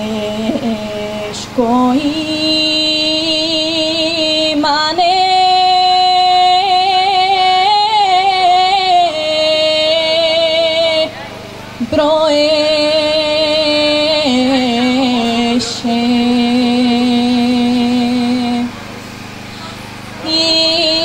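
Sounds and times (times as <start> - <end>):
woman singing unaccompanied: 0.0 - 11.2, 11.8 - 18.8, 20.2 - 21.0
singer breathing: 19.0 - 20.0.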